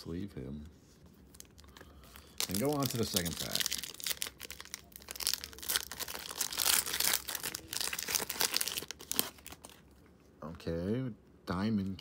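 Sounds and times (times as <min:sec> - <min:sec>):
foil wrapper crinkling: 0:01.3 - 0:09.8.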